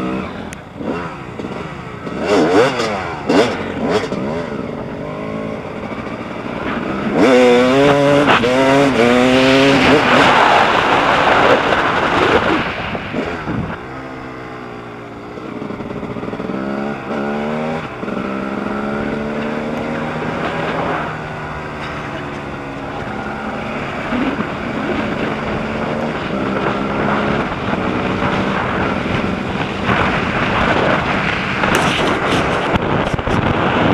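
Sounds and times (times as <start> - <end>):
dirt bike engine revving: 0.0 - 33.9
wind on microphone: 5.6 - 14.0, 23.0 - 33.9.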